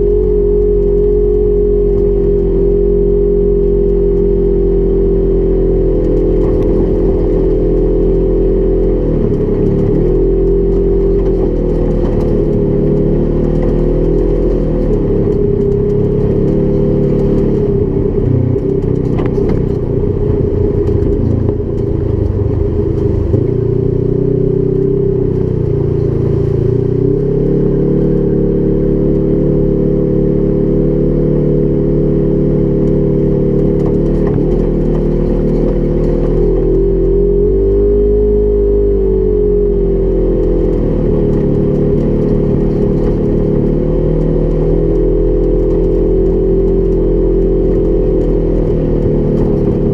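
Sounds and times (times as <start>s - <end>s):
utility vehicle engine running: 0.0s - 49.9s.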